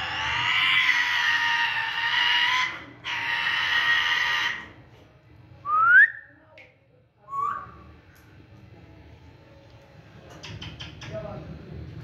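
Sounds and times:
parrot calling: 0.0 - 4.7.

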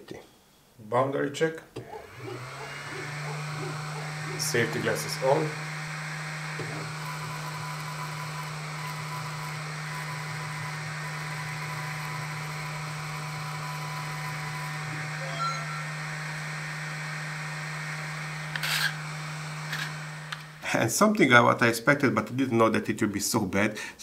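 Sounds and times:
stepper motors moving: 1.8 - 16.6, 18.3 - 20.6
fan hum: 1.8 - 21.1
faint high tone: 15.0 - 16.1.

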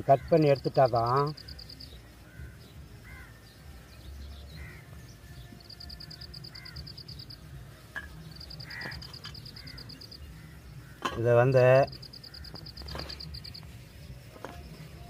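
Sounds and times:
crows cawing in the distance: 0.0 - 1.6, 2.2 - 3.5, 4.4 - 5.0, 5.9 - 7.3, 8.4 - 13.3.

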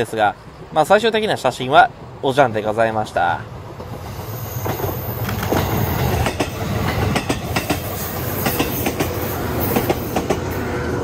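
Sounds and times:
electric train rumbling past: 0.0 - 11.0
wheels clacking over rail joints: 3.7 - 10.6.

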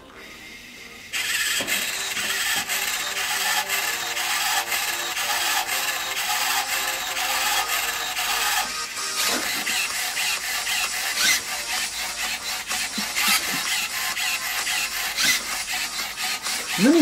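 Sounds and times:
robot servo motors whirring: 1.2 - 17.0.

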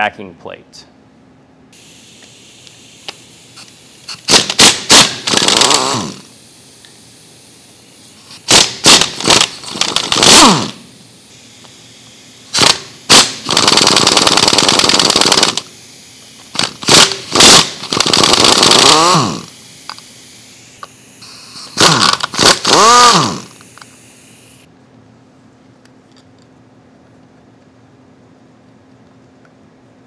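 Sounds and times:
impact wrench hammering: 3.6 - 6.3, 8.3 - 10.8, 12.5 - 15.7, 16.4 - 19.5, 20.8 - 23.7.

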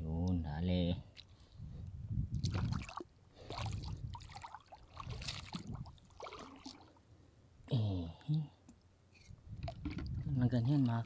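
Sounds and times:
seawater splashing and dripping: 2.4 - 7.0.

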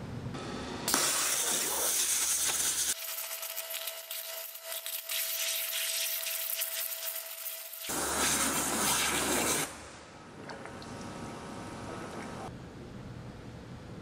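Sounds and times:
waterjet hissing: 0.9 - 3.0.

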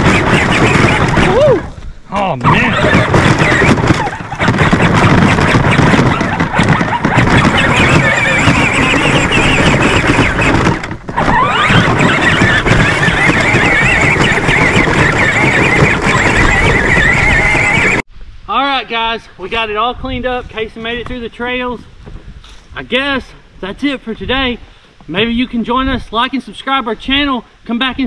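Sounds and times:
electric motors whining: 7.6 - 18.0.

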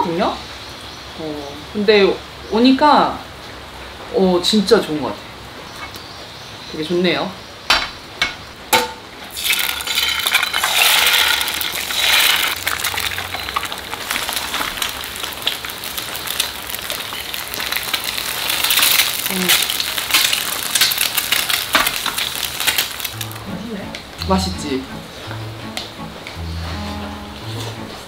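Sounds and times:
metal utensil clinking on pan: 8.8 - 13.7
food sizzling in a pan: 9.2 - 27.9.

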